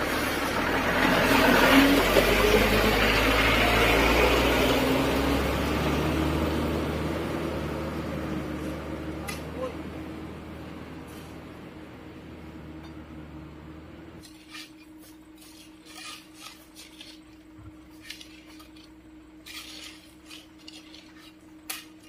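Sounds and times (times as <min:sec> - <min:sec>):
dump truck engine running: 0:00.0 - 0:14.2.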